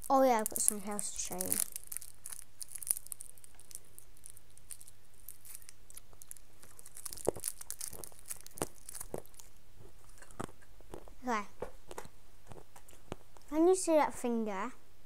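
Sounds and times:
sweet wrapper crinkling and tearing: 0:00.0 - 0:13.5.

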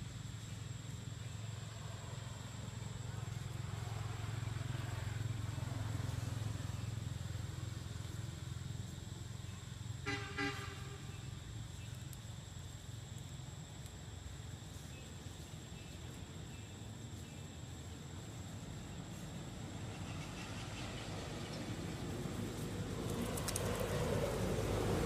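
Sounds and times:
motor vehicle hum: 0:00.0 - 0:25.0
vehicle horn toot: 0:10.0 - 0:11.3.

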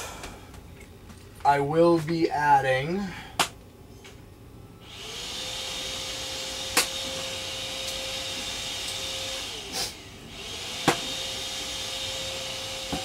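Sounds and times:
small electric motor whining: 0:04.8 - 0:13.0.

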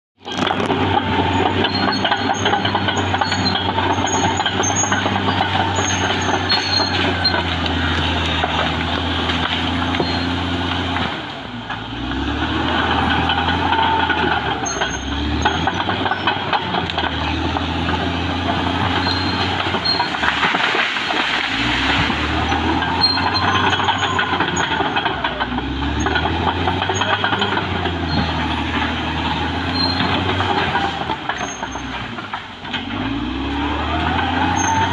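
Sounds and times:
bulldozer diesel engine under load: 0:00.2 - 0:34.9
short high squeaks: 0:01.2 - 0:08.8, 0:09.7 - 0:10.6, 0:13.3 - 0:16.4, 0:18.6 - 0:25.0, 0:25.9 - 0:32.1, 0:34.2 - 0:34.9.

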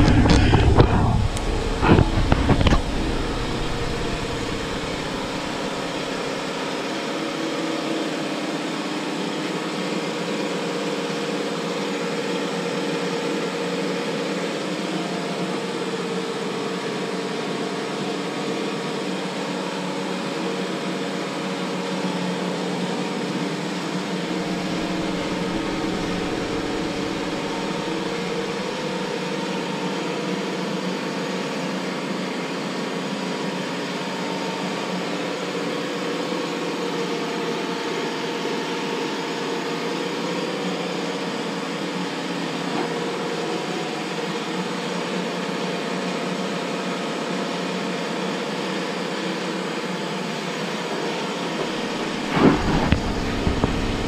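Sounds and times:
brief low rumble: 0:00.0 - 0:06.5, 0:24.4 - 0:28.8, 0:51.6 - 0:54.0
steady mechanical hum: 0:00.0 - 0:07.3, 0:21.9 - 0:32.6, 0:50.0 - 0:54.0.

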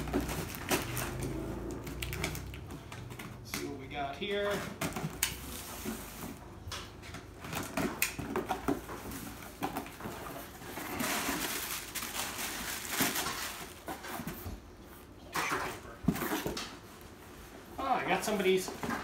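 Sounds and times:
plastic packing crinkling: 0:00.0 - 0:03.2, 0:07.5 - 0:14.2.

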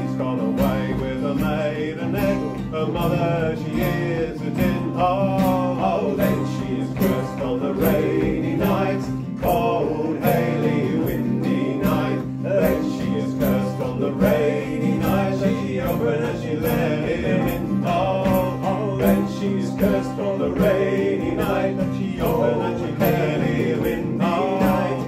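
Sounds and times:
acoustic guitars strumming: 0:00.0 - 0:25.0
banjo strumming: 0:00.0 - 0:25.0
men singing in harmony: 0:00.0 - 0:25.0.

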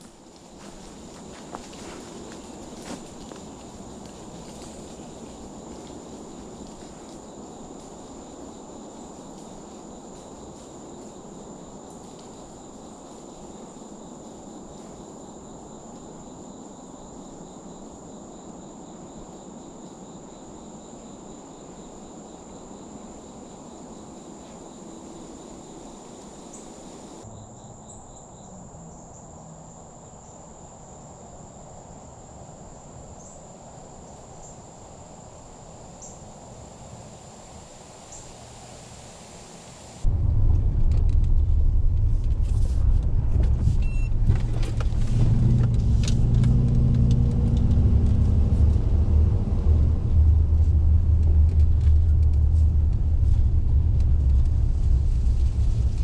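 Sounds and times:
truck rumbling on dirt track: 0:40.1 - 0:56.0.

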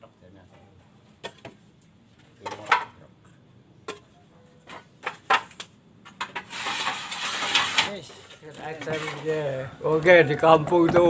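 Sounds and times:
roof tiles clacking: 0:02.2 - 0:03.1, 0:03.8 - 0:09.6.

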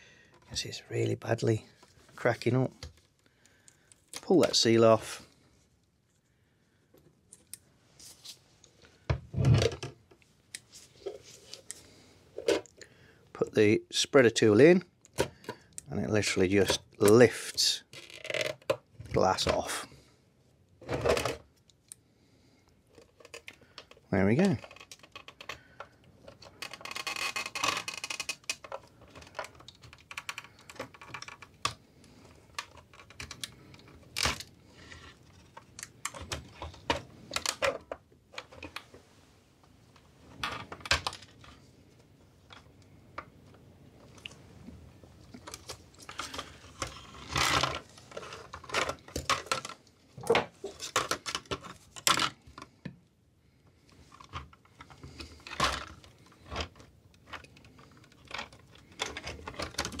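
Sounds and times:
glass and plastic clicks and scrapes: 0:53.9 - 1:00.0.

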